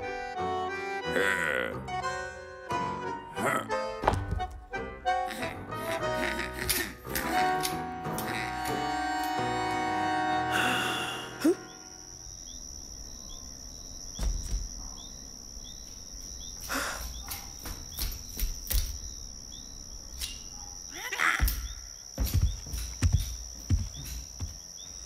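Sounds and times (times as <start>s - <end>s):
cricket chirps: 0.0s - 25.0s
insects trilling: 0.0s - 25.0s
scattered knocks: 14.1s - 14.8s, 21.4s - 24.8s.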